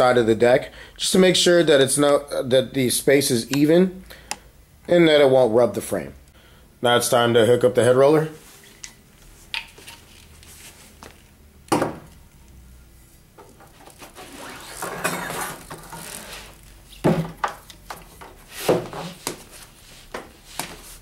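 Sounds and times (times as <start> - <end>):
belt scraping and rustling: 13.7 - 17.0.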